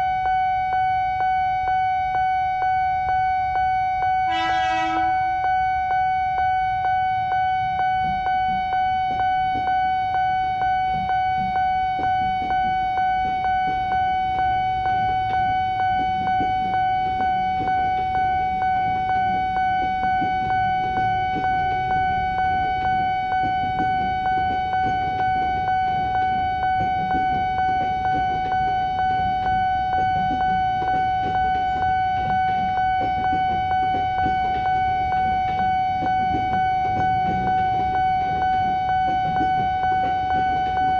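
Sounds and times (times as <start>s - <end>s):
electric train rumbling past: 4.3s - 5.6s.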